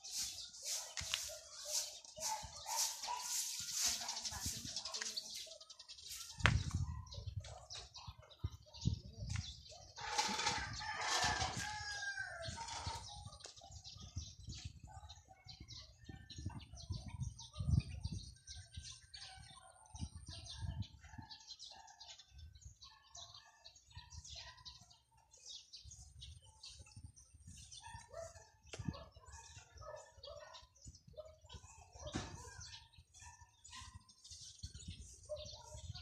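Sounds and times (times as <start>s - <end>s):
leaves brushing against phone: 0.0s - 4.7s
small birds chirping: 0.0s - 36.0s.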